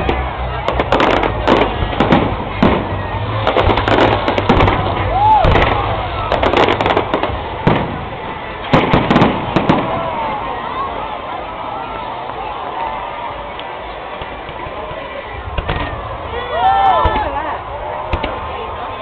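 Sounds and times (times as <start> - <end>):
fireworks bangs and crackles: 0.0 - 19.0.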